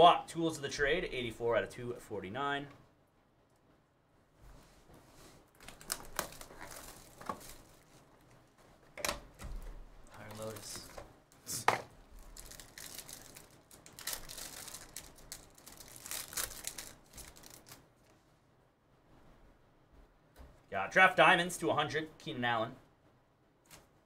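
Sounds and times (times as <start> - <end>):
plastic wrappers crinkling and tearing: 5.5 - 8.4, 10.1 - 11.0, 12.1 - 18.1.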